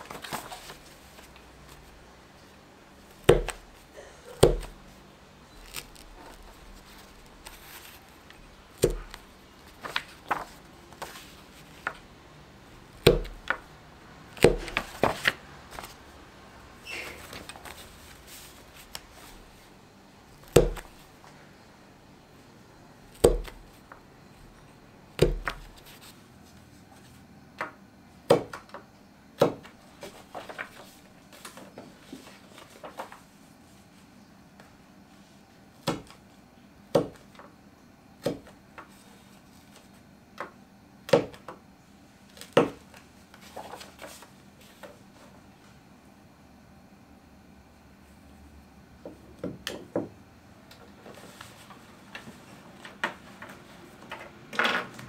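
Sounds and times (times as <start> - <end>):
paper being handled: 0.0 - 12.2, 14.4 - 16.2, 16.8 - 21.2, 29.7 - 34.1, 42.3 - 45.4, 50.8 - 54.2.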